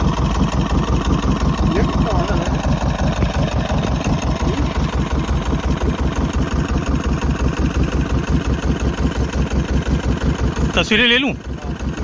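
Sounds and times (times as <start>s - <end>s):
boat engine idling: 0.0s - 12.0s.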